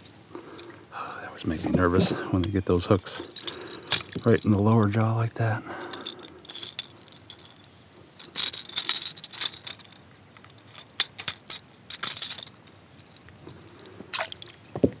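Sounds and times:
metal hooks jingling against pliers: 1.8 - 5.0, 5.6 - 14.3.

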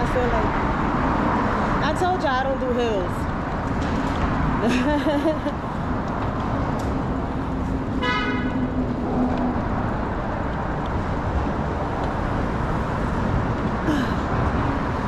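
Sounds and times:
road traffic noise: 0.0 - 15.0
short car horn toot: 8.0 - 8.6.

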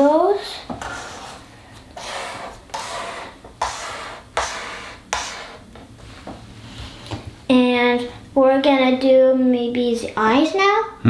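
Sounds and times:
marker scratching on paper: 0.8 - 1.4, 2.0 - 5.6.

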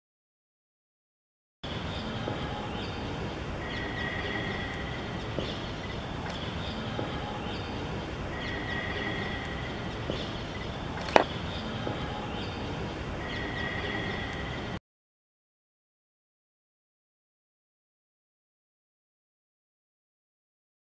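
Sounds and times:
faint high whistling tones: 2.0 - 14.8
sharp click: 6.2 - 6.4.

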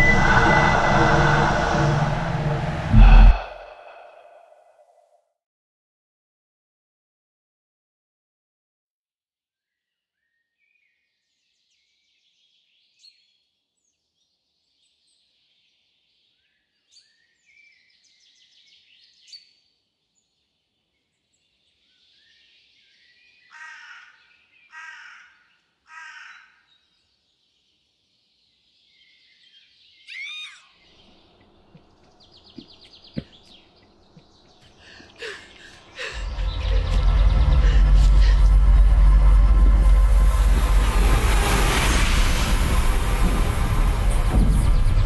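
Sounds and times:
low rumble: 0.0 - 4.7, 35.8 - 45.0
loud bird calls: 22.1 - 27.2, 28.9 - 39.0
birds singing and chirping: 26.7 - 38.9.

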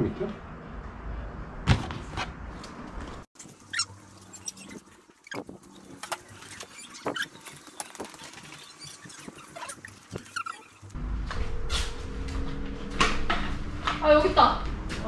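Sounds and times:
short high squeaks: 3.6 - 5.4, 6.4 - 10.9.

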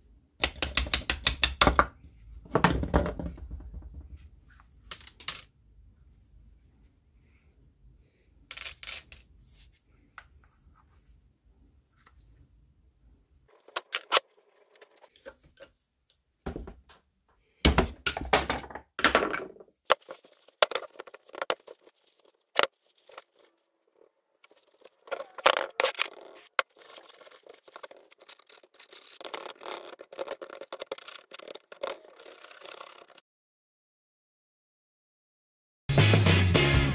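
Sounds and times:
scraping and rustling: 19.9 - 33.2.

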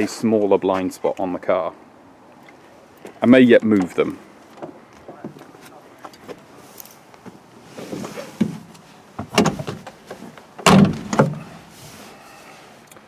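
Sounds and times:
rustling: 3.9 - 13.0
car door shutting: 7.8 - 10.0, 10.6 - 11.6.

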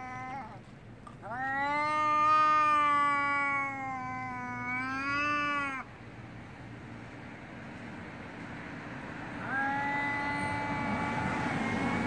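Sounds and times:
cat yowling angrily: 0.0 - 0.6, 1.2 - 5.9, 9.4 - 11.7.

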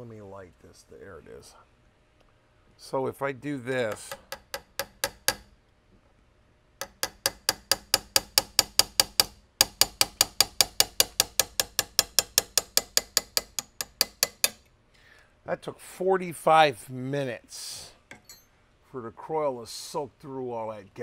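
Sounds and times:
hammer tapping steel: 3.7 - 5.5, 6.8 - 14.7, 18.1 - 18.5.

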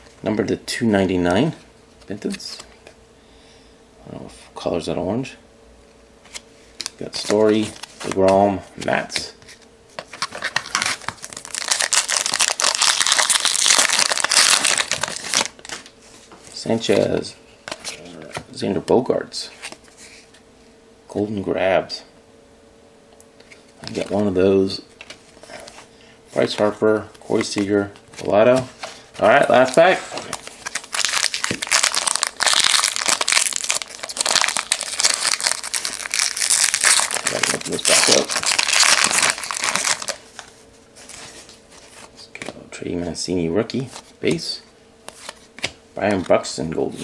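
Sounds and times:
wrapper tearing and crinkling: 10.3 - 15.7, 29.2 - 40.2.

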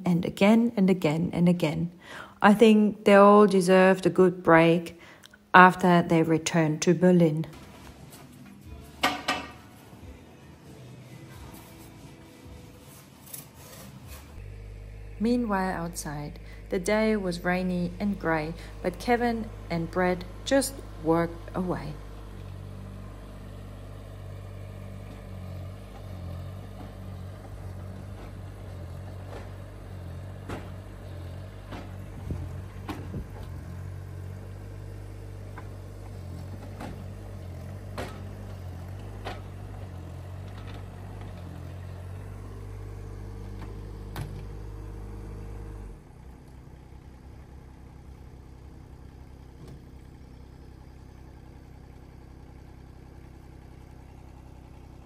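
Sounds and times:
diesel engine running: 0.0 - 55.0
sharp clanks and knocks: 8.9 - 9.8.

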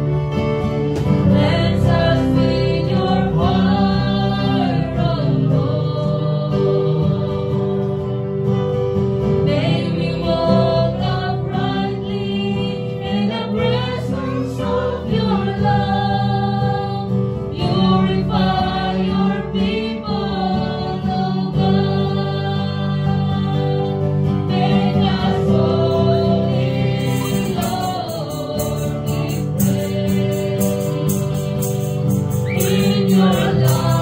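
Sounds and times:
strummed acoustic guitar: 0.0 - 34.0
woman singing into microphone: 1.2 - 8.0, 9.4 - 34.0.

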